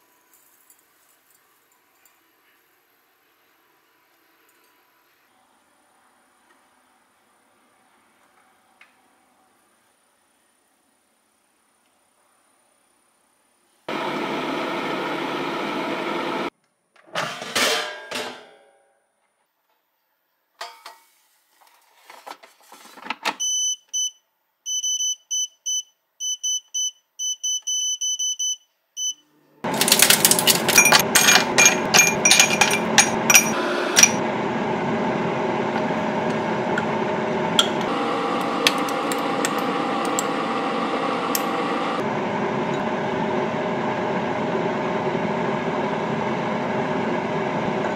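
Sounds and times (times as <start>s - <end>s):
air fryer whirring: 13.9s - 16.5s, 29.6s - 47.9s.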